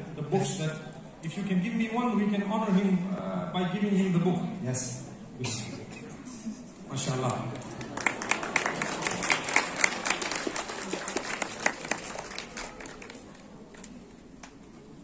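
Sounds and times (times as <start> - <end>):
audience applauding: 7.4 - 13.6.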